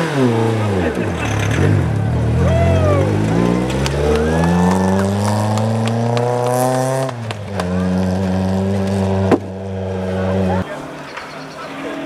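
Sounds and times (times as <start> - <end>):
rally car engine revving: 0.0 - 10.9.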